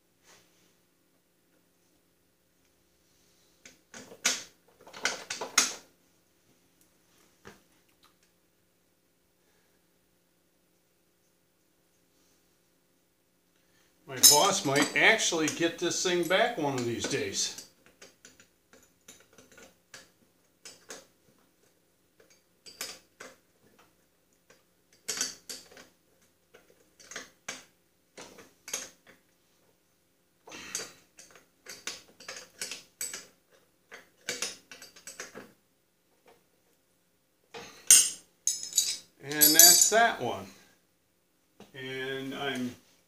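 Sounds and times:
light metal clicks and clinks: 37.9s - 40.0s.

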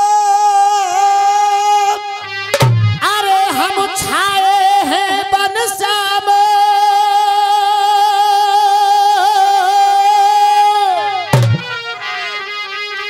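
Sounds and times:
person singing long high note: 0.0s - 12.6s
thump: 11.4s - 11.7s.

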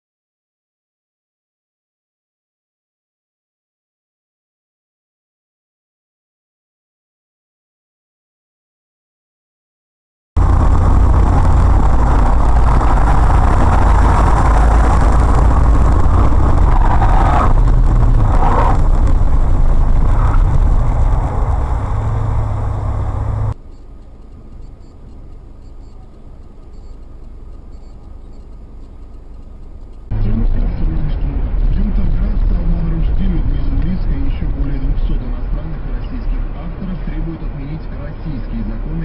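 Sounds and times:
engine and road rumble inside car: 10.4s - 39.0s
street traffic noise: 10.4s - 39.0s.

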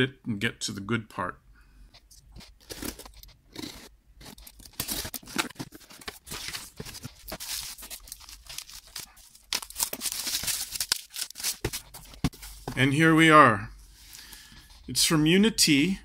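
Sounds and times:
tape and cardboard ripping: 2.4s - 12.3s
bubble wrap crinkling: 4.2s - 12.3s.

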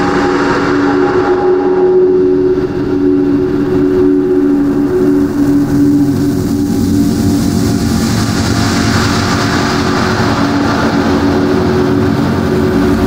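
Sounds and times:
rushing noise: 0.0s - 13.0s
steady low hums: 0.0s - 13.0s.

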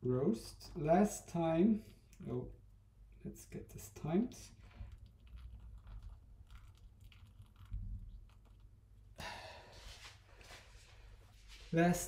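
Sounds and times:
water trickling with light ticks: 4.6s - 8.8s.

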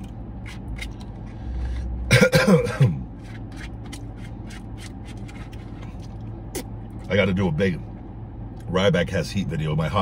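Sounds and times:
man coughing: 2.0s - 3.1s
man clearing his throat: 2.1s - 3.1s.

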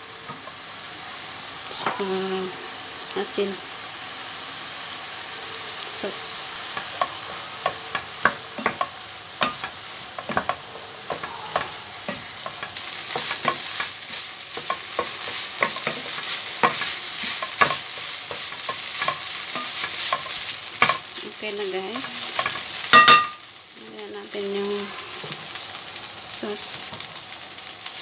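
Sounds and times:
meat sizzling in a frying pan: 0.0s - 28.0s
spatula scraping a pan: 6.6s - 21.2s.

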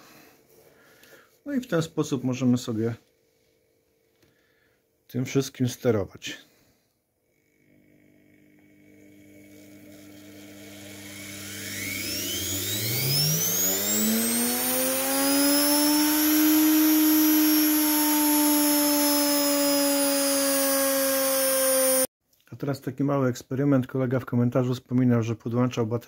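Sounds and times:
electric motor whine: 7.3s - 22.1s.

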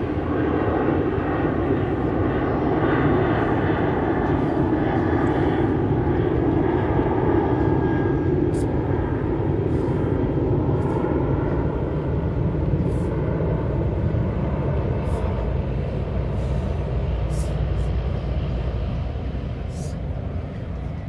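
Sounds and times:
low outdoor rumble: 0.0s - 21.0s
short high hisses: 17.3s - 17.8s, 19.7s - 20.0s.

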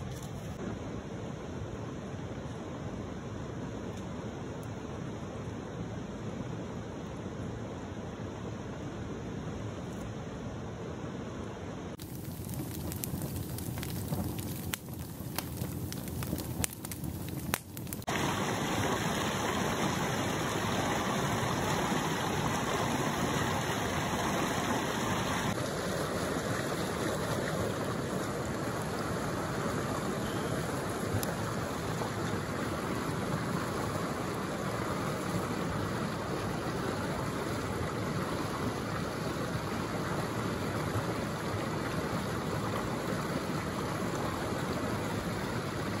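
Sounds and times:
wood fire crackling and popping: 12.0s - 18.3s, 30.9s - 32.5s
river rushing over rocks: 18.1s - 46.0s.

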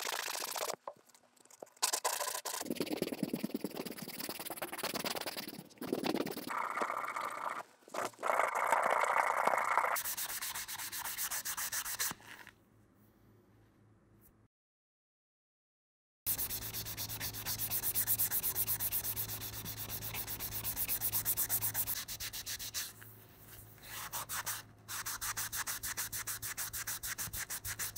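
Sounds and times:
sanding sponge scrubbing stone: 2.2s - 6.5s, 10.0s - 12.1s, 16.3s - 22.9s, 24.0s - 27.9s.

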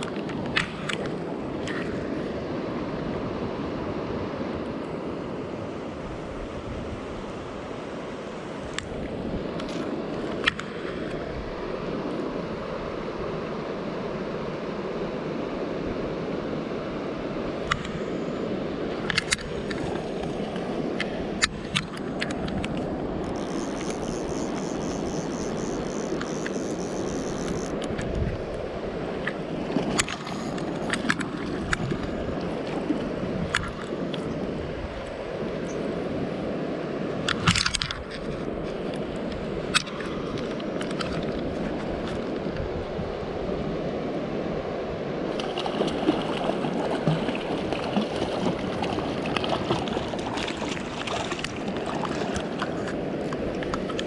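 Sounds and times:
fish splashing: 23.2s - 27.8s
high rapid ticking: 23.3s - 27.7s.

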